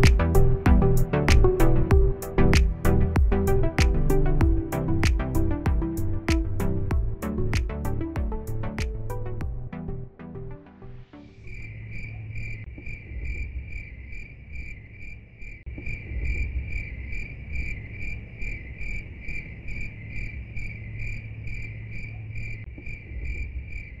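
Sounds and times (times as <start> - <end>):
low background rumble: 0.0 - 10.2
insect-like chirping: 11.3 - 24.0.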